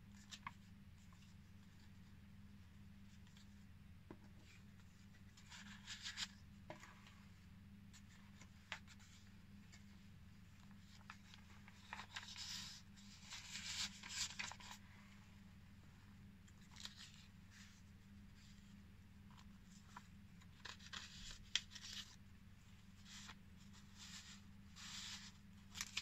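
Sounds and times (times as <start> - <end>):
paper pages rustling: 4.2 - 7.2, 7.9 - 10.0, 10.6 - 15.1, 16.5 - 18.7, 19.3 - 22.2, 22.9 - 26.0.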